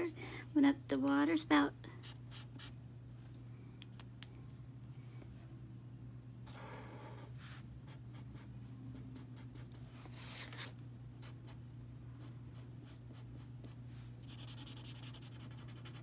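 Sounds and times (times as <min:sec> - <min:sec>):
steady low hum: 0:00.0 - 0:16.0
felt-tip marker scratching paper: 0:14.2 - 0:16.0.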